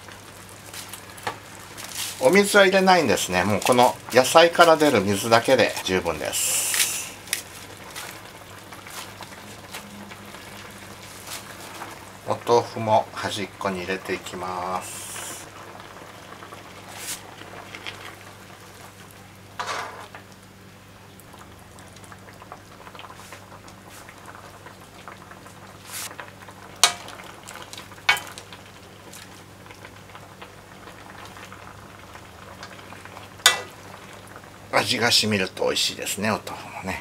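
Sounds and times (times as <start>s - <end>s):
broth simmering and bubbling: 0.0s - 37.0s
tofu knocking in pan: 26.7s - 27.3s, 33.4s - 33.8s.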